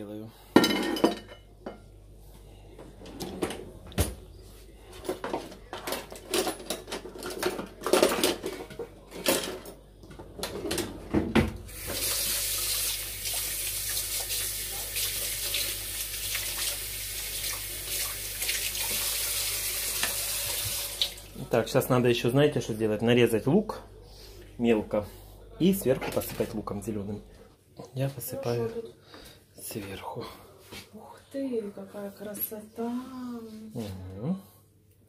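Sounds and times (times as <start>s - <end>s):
kitchenware clinking: 0.5s - 1.9s, 5.0s - 11.5s.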